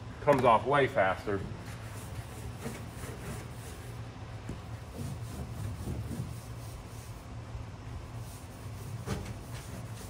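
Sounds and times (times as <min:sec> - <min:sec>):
steady low hum: 0:00.0 - 0:10.0
rag rubbing on metal hood: 0:01.5 - 0:07.4, 0:08.0 - 0:10.0.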